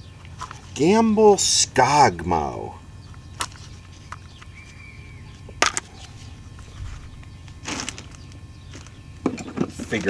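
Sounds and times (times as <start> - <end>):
faint steady hum: 0.0 - 10.0
plastic case handling: 5.5 - 10.0.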